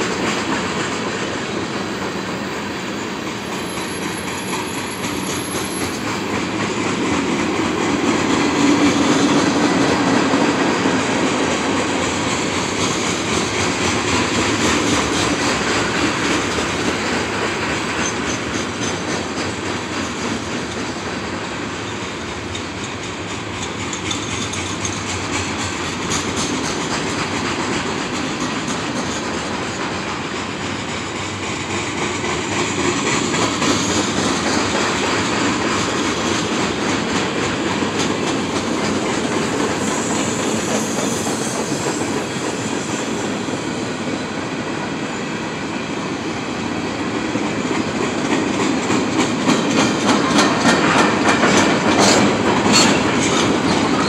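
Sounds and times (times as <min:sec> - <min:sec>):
freight train rumbling: 0:00.0 - 0:54.0
wheels clattering over rail joints: 0:21.9 - 0:43.2, 0:47.4 - 0:54.0.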